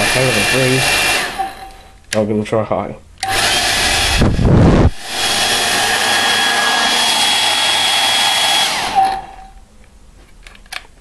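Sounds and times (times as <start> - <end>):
hair dryer blowing with high whine: 0.0 - 1.8, 3.2 - 9.6
airflow buffeting microphone: 3.6 - 6.2.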